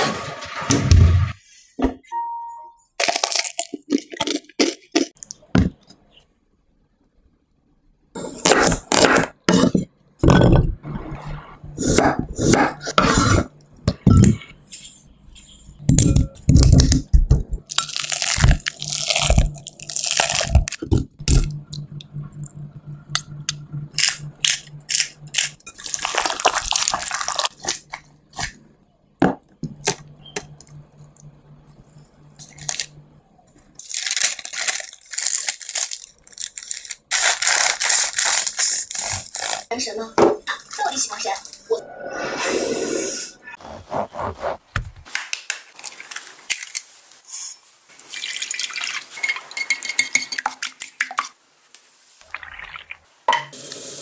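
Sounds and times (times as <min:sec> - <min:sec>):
paper crinkling: 0:17.7 - 0:21.1, 0:25.4 - 0:28.5, 0:32.4 - 0:32.9, 0:33.7 - 0:39.8, 0:45.0 - 0:47.6
water: 0:47.9 - 0:51.4.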